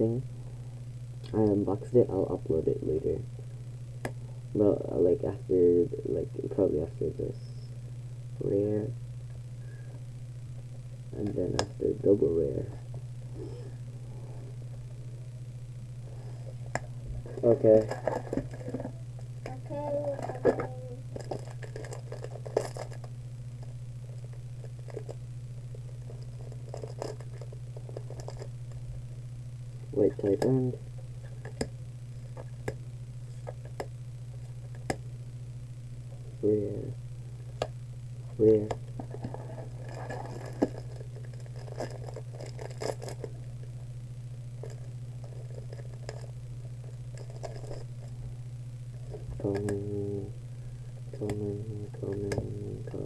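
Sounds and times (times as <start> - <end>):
steady low hum: 0.0 - 53.0
cards scraping and rustling: 17.2 - 19.0, 20.1 - 23.1, 25.8 - 28.6, 39.0 - 43.4, 44.6 - 48.2.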